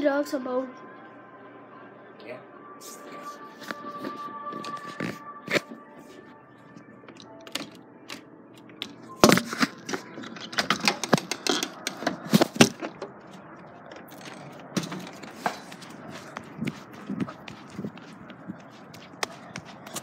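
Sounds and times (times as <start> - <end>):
sharp clicks knocks and scrapes: 8.8 - 13.2.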